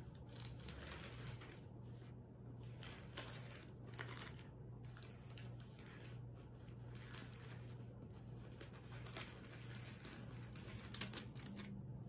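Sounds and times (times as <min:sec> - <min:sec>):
paper pages rustling: 0:00.0 - 0:12.0
steady low hum: 0:00.0 - 0:12.0.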